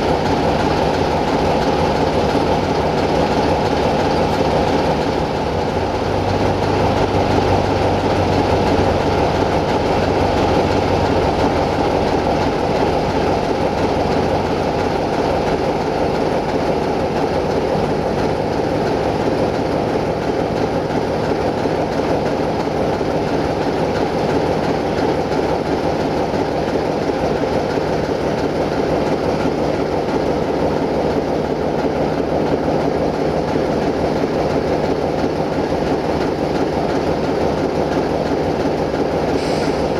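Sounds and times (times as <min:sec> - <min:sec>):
locomotive engine drone: 0:00.0 - 0:39.9
wheels rumbling on rails: 0:00.0 - 0:39.9.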